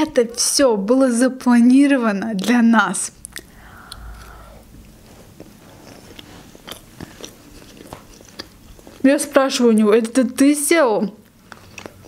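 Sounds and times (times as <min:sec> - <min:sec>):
person chewing food: 0:02.4 - 0:09.1, 0:11.2 - 0:12.0.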